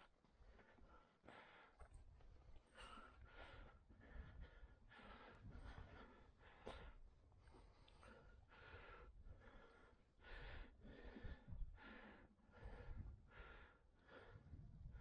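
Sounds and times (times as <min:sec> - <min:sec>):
person breathing heavily: 0:00.4 - 0:15.0.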